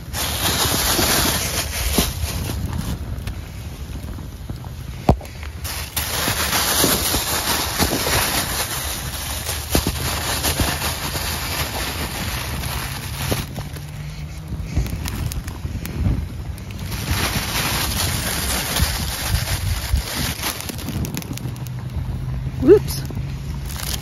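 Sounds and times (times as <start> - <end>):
wind gusting over microphone: 0.0 - 24.0.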